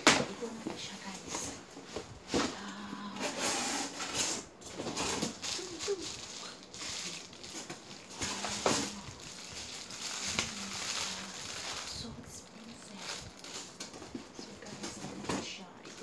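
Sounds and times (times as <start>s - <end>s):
plastic wrapping crinkling: 3.3s - 16.0s.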